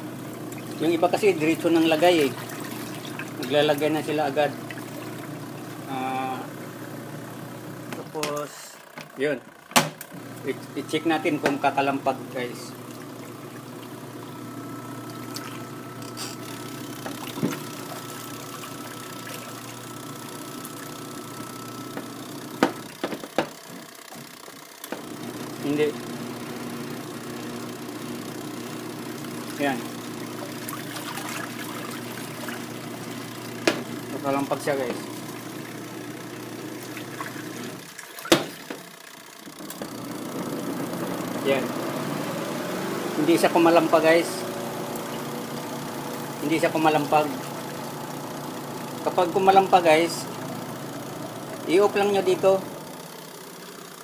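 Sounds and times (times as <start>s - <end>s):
spin-dryer motor humming: 0.0s - 54.0s
sharp knocks: 38.3s - 38.8s.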